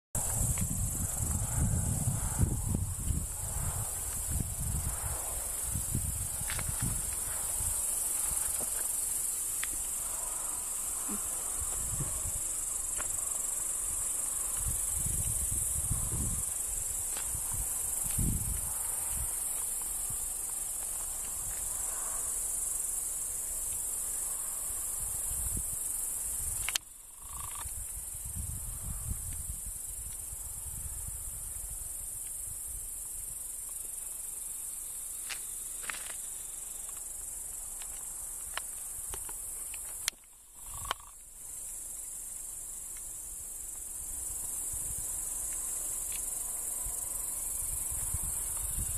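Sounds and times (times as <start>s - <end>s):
wind rumbling on microphone: 0.2s - 23.0s, 23.9s - 33.6s, 42.8s - 48.9s
crickets chirring: 0.2s - 48.9s.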